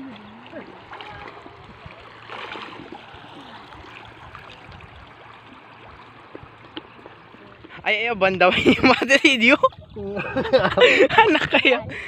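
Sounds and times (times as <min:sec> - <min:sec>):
loud water splash: 0:00.0 - 0:06.2
shallow water sloshing: 0:00.0 - 0:11.3.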